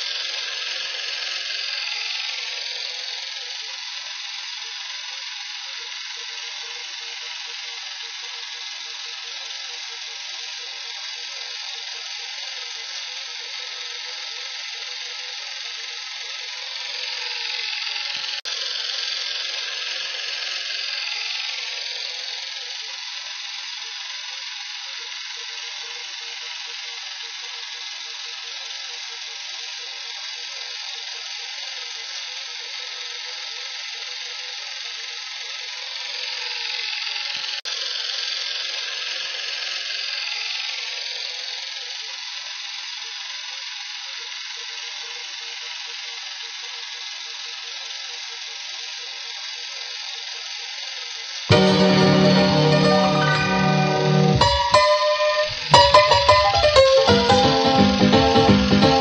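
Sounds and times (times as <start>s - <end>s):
mechanical rattling whir: 0.0s - 31.3s.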